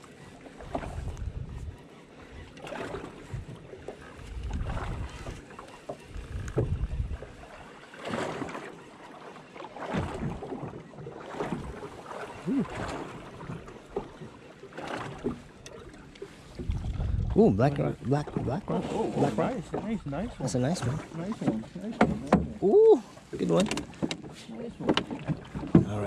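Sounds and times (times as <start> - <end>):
water slapping against boat hull: 0.0 - 26.0
wind buffeting microphone: 0.7 - 1.8, 3.0 - 3.6, 4.2 - 5.4, 6.1 - 7.4, 16.5 - 21.0
wooden creak: 4.4 - 7.0.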